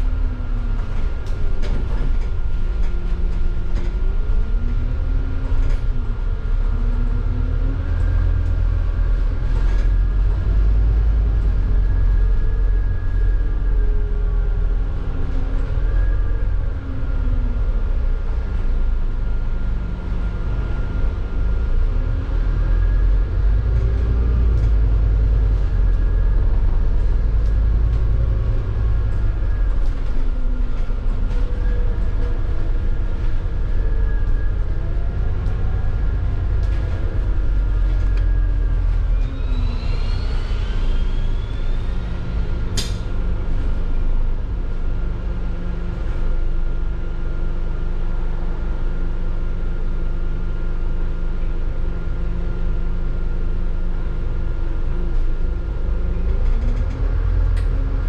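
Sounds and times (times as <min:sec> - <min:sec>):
bus diesel engine: 0:00.0 - 0:58.0
rising whine: 0:04.0 - 0:47.8
sharp click: 0:42.8 - 0:43.0.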